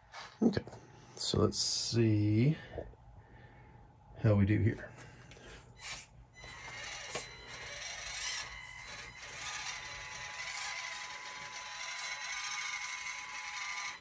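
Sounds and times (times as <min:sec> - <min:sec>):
small electric motor whining: 0:05.8 - 0:14.0.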